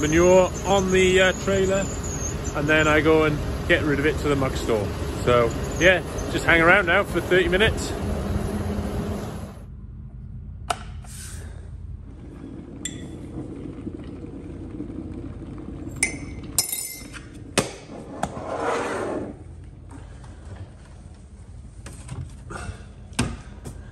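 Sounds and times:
kettle water heating rumble: 0.0 - 9.7, 11.4 - 17.9.

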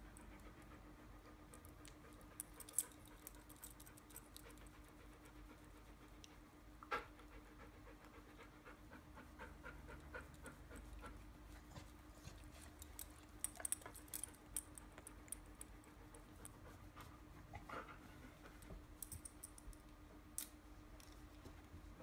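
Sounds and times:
dog panting: 4.3 - 14.2, 14.9 - 18.9.

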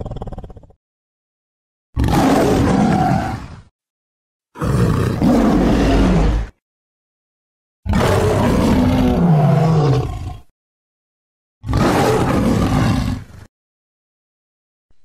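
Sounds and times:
big cat roaring: 2.0 - 3.7, 4.6 - 6.6, 7.9 - 10.5, 11.6 - 13.5.

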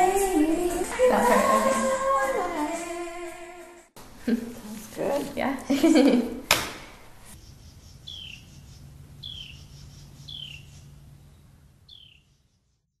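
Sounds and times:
bird chirping: 7.4 - 12.9.

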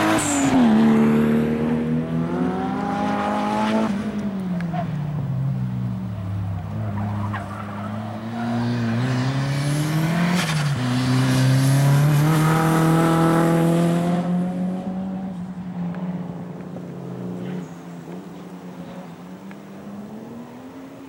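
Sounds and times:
car engine revving hard: 8.6 - 15.2.

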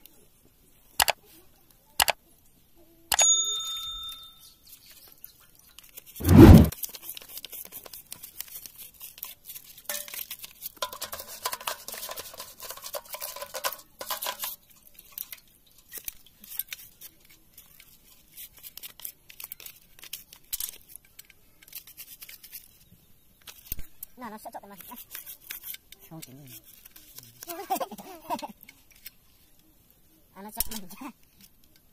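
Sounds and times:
chainsaw parts clicking and scraping: 14.1 - 22.7.

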